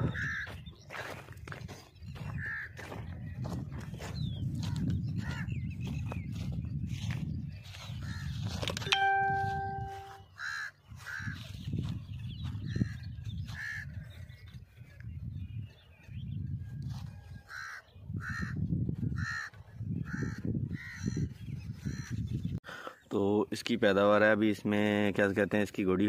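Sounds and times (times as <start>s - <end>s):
crows cawing: 10.4s - 11.4s, 17.5s - 18.6s, 19.2s - 21.0s.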